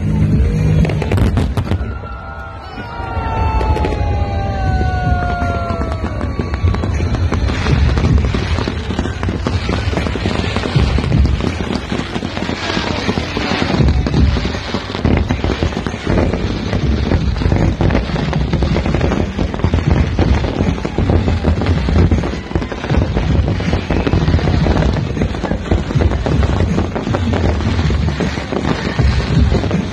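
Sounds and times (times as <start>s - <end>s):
fireworks bursting and crackling: 0.0s - 29.9s.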